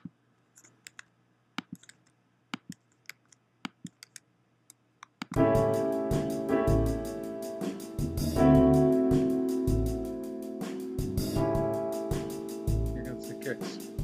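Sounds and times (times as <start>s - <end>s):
computer mouse clicks: 0.0s - 5.4s
keyboard chords with bass and drums: 5.4s - 14.0s.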